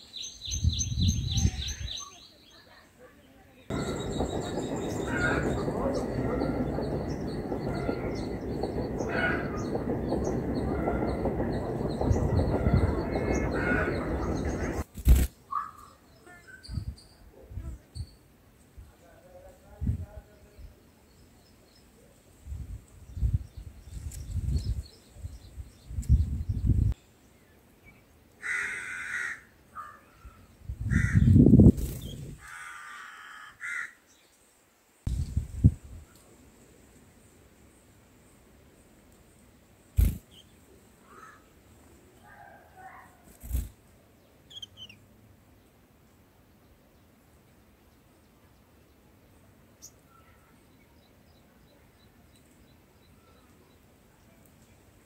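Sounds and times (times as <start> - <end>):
small birds chirping: 0.0 - 19.1, 39.9 - 41.4, 42.2 - 45.8
lower bird calls: 3.7 - 14.8
steady low rumble: 3.7 - 14.9.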